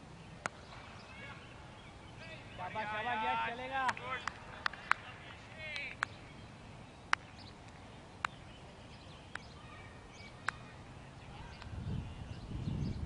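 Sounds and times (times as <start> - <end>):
low wind rumble on microphone: 10.2 - 13.0.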